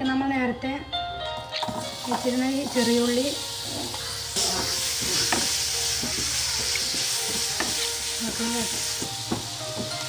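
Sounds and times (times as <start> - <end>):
shallots sizzling in hot oil: 1.4 - 10.0.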